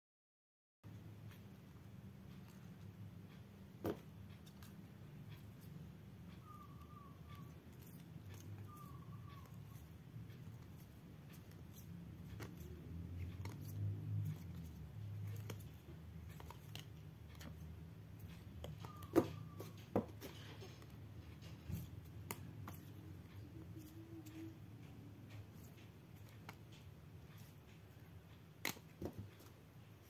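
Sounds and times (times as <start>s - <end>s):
plastic cards rustling: 7.6s - 24.6s.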